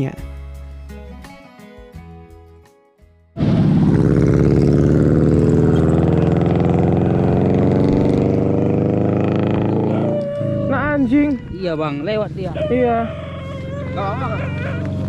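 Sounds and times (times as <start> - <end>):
motorcycle engine running: 3.4 - 15.0.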